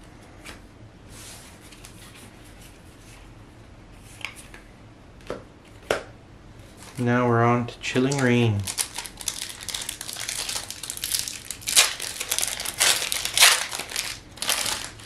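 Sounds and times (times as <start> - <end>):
cards rustling: 8.0 - 15.0.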